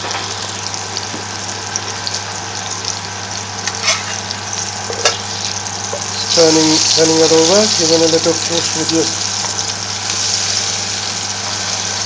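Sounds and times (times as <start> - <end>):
meat sizzling in a frying pan: 0.0 - 12.0
metal spatula scraping a pan: 3.8 - 4.2.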